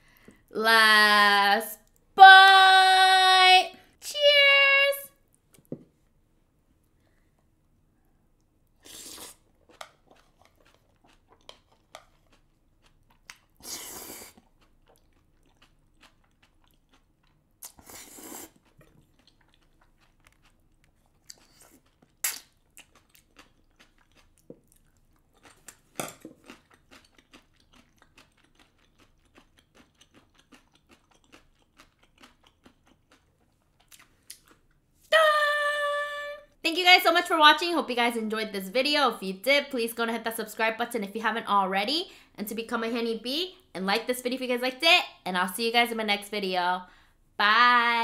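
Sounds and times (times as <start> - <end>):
chewing and wet mouth sounds: 8.4 - 34.8
slurping noodles: 8.8 - 9.5, 13.6 - 14.5, 17.6 - 18.7.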